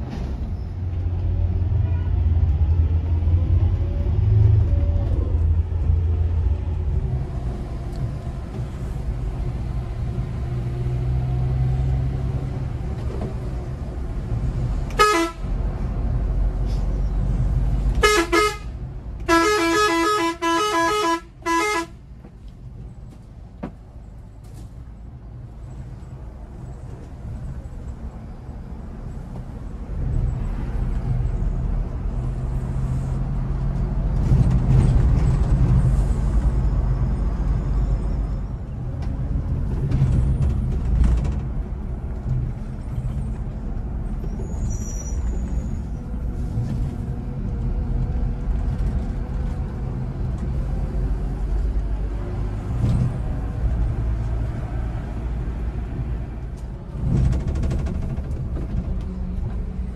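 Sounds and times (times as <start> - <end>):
vehicle horn tooting: 15.0 - 15.4, 18.0 - 18.7, 19.3 - 21.9.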